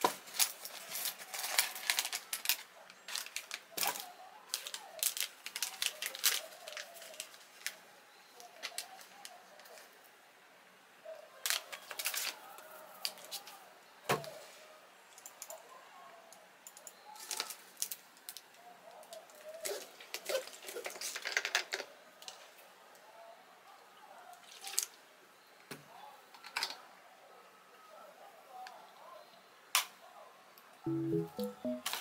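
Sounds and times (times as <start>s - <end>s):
plastic crinkling and clicking: 0.0s - 7.8s, 11.5s - 12.4s.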